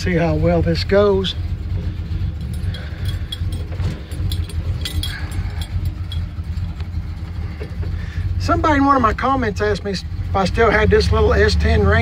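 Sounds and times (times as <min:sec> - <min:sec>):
pickup engine rumble: 0:00.0 - 0:12.0
light ticks and rattles: 0:01.8 - 0:08.3.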